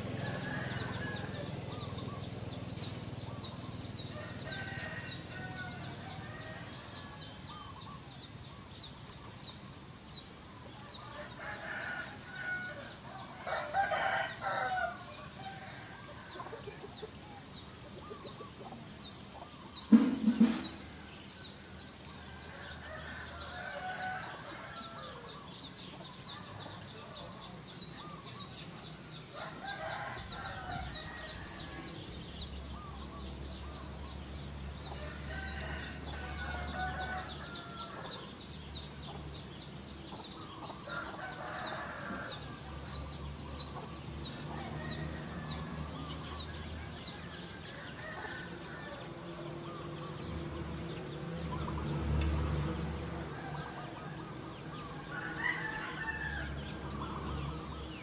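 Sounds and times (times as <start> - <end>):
rooster crowing: 0.0 - 2.2, 4.0 - 7.4, 11.0 - 16.8, 22.2 - 25.4, 29.3 - 32.1, 34.8 - 38.3, 40.8 - 43.1, 44.2 - 49.9, 53.1 - 58.0
chickens clucking: 0.0 - 58.0.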